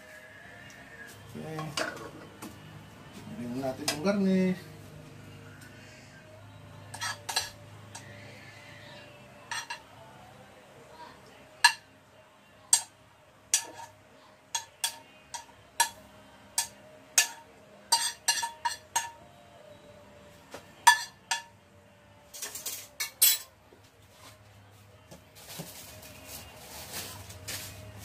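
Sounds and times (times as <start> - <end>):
metal kitchenware clinking: 6.9 - 8.1, 9.4 - 9.8, 13.5 - 13.9, 16.6 - 19.2, 20.8 - 21.5, 22.3 - 23.5.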